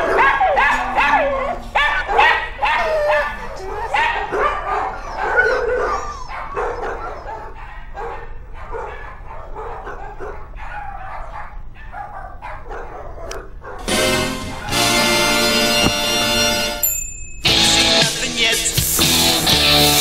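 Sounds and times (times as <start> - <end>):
dogs barking and yipping: 0.0 - 16.5.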